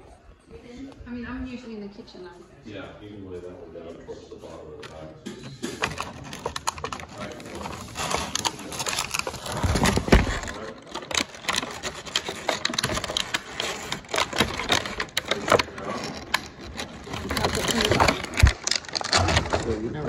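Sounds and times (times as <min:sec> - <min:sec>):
handling noise rustling and clicking: 0:04.8 - 0:20.0.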